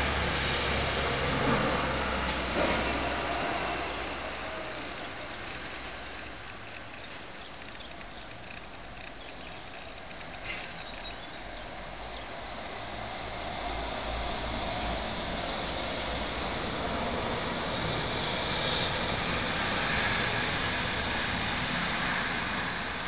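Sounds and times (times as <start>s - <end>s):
distant vehicle rumble: 0.0s - 23.0s
high bird chirps: 5.0s - 12.3s.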